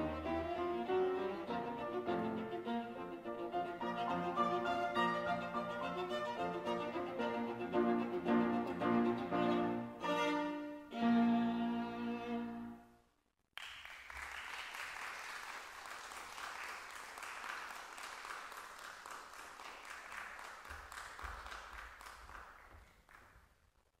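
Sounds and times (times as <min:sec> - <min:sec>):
audience applauding: 0:13.6 - 0:23.5.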